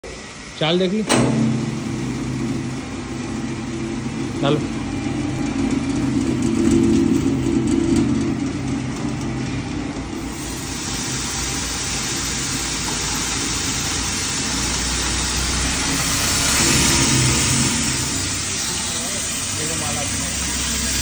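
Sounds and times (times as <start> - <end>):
electric grinder mill running: 0.0 - 21.0
rice grinding hiss: 10.2 - 21.0.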